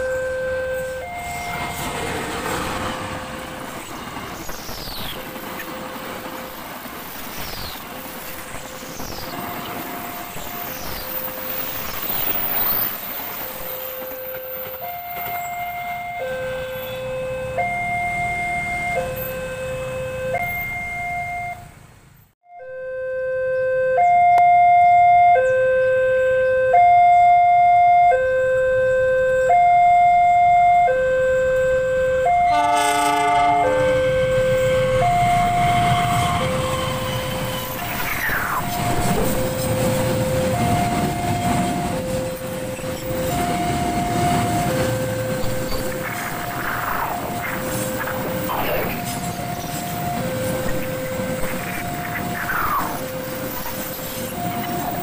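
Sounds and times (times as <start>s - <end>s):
two-tone level-crossing alarm: 0.0s - 3.9s, 9.3s - 21.7s, 22.5s - 55.0s
freight train wagons rumbling: 0.7s - 19.4s, 31.4s - 55.0s.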